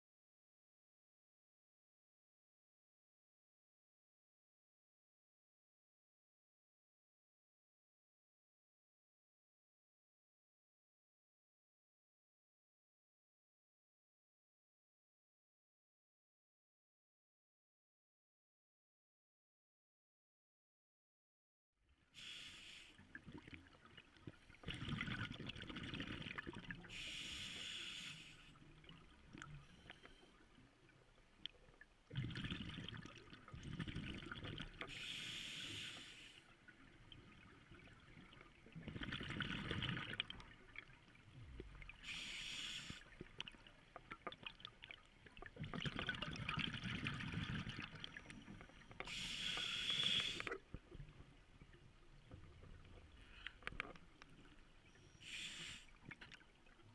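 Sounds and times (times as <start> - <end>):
diver breathing through regulator: 26.9 - 28.6, 34.9 - 36.5, 42.0 - 43.1, 49.0 - 50.6, 55.1 - 56.0
bubbling underwater: 38.8 - 40.5.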